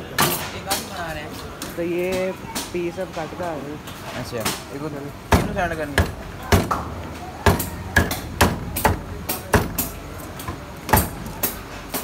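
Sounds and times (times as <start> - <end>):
meat cleaver chopping on wood: 7.5 - 10.0, 10.9 - 12.0.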